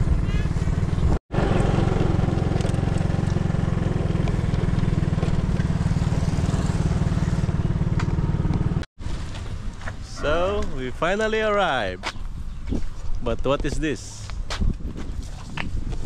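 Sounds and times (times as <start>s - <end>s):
small motorbike running: 0.0s - 10.6s
wind rumble on microphone: 9.4s - 16.0s.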